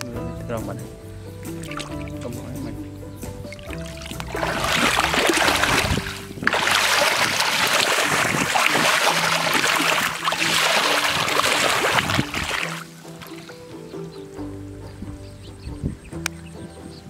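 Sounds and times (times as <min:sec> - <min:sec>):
feet splashing through muddy water: 0:01.5 - 0:02.5, 0:03.5 - 0:13.7.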